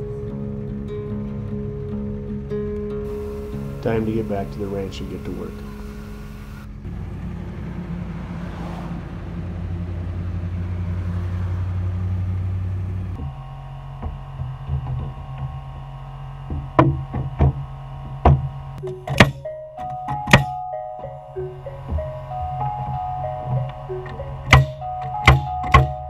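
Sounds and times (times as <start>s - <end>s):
truck engine and road rumble: 0.0s - 26.0s
sharp knocks: 16.5s - 20.6s, 21.8s - 26.0s.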